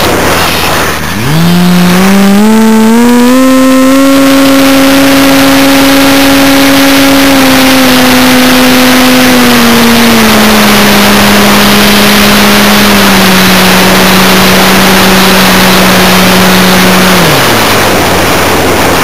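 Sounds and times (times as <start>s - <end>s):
model aircraft motor whine: 0.0s - 19.0s
rushing wind noise: 0.0s - 19.0s.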